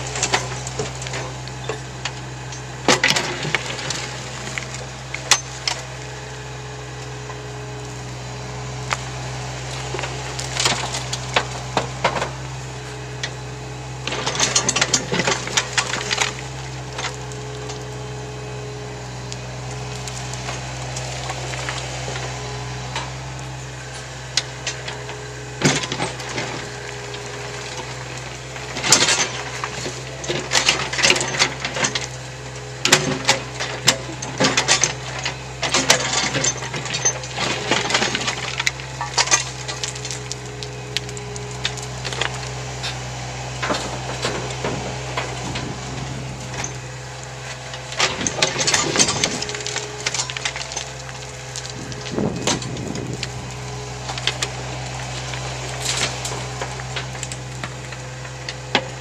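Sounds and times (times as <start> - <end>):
excavator diesel engine running: 0.0 - 59.0
stones clattering against steel bucket: 47.5 - 53.4.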